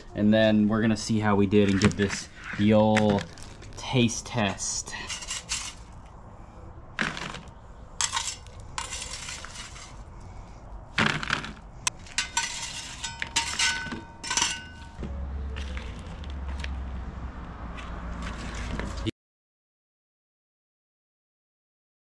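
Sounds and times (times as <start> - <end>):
metal spatula scraping a grill pan: 4.5 - 6.0, 8.0 - 10.1, 12.0 - 15.0.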